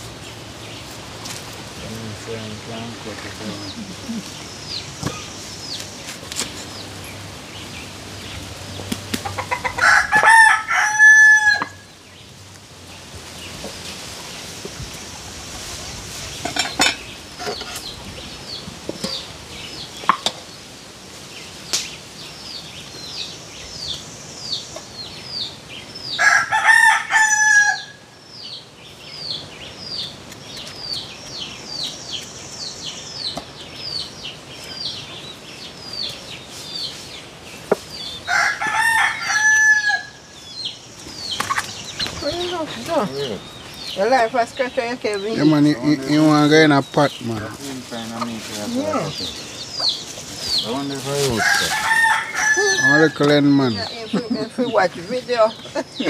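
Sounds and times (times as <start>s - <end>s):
bird chirping: 0.0s - 20.7s, 21.3s - 56.0s
rooster crowing: 9.4s - 11.9s, 26.1s - 28.1s, 38.2s - 40.3s, 51.3s - 53.3s.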